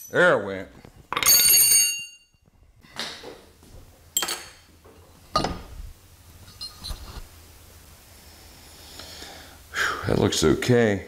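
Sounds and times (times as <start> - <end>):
metal clanging with ringing: 1.1 - 2.4.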